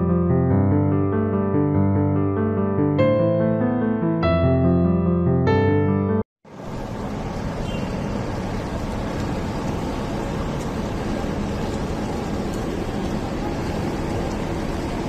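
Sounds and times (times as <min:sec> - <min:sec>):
road traffic rumble and hiss: 0:06.4 - 0:15.0.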